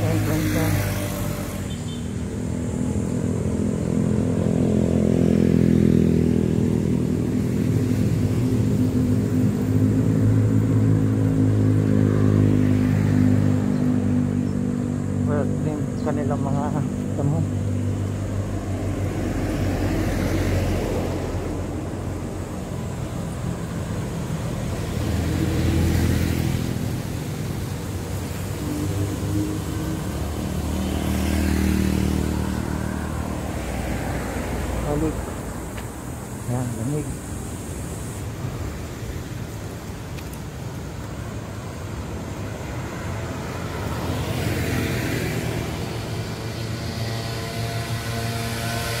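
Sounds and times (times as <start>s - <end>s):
cars passing: 0.0s - 49.0s
low traffic rumble: 0.0s - 49.0s.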